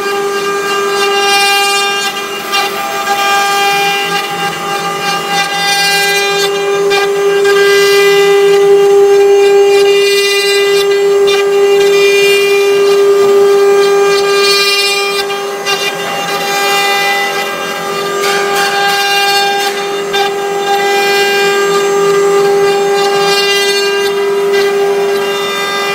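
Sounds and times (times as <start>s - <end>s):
router spindles whining: 0.0s - 25.9s.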